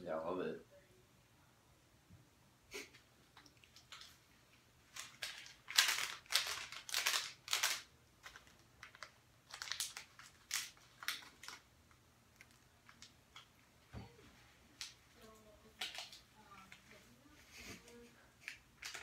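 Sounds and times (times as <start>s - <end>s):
food packaging crinkling: 3.3s - 13.6s, 14.7s - 16.8s, 18.4s - 19.0s.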